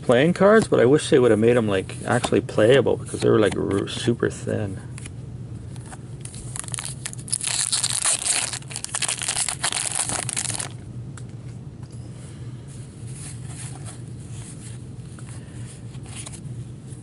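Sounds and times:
handling of cards: 4.9 - 12.0, 13.0 - 17.0
foil wrapper ripping and crinkling: 6.3 - 10.8.

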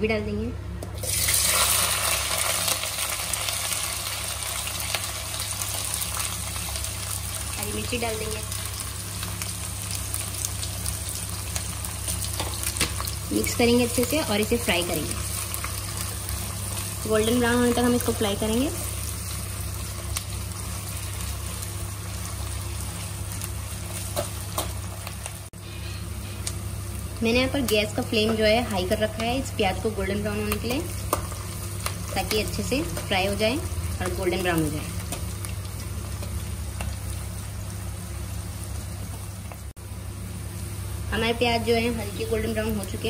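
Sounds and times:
onions sizzling in hot oil: 1.0 - 43.0.

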